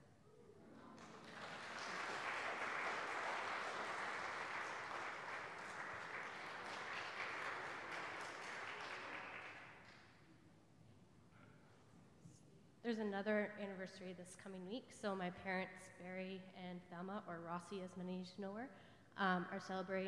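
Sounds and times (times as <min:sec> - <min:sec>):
congregation applauding: 0:00.7 - 0:10.2.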